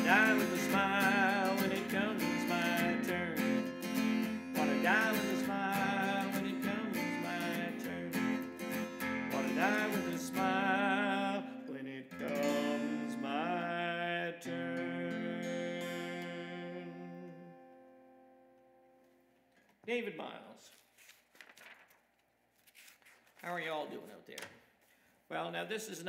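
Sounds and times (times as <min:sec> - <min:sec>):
man singing: 0:00.0 - 0:17.7
acoustic guitar strumming: 0:00.0 - 0:19.0.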